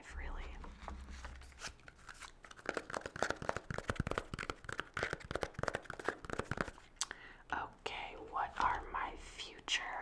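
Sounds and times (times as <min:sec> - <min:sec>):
notebook pages flicking: 0:01.3 - 0:06.8.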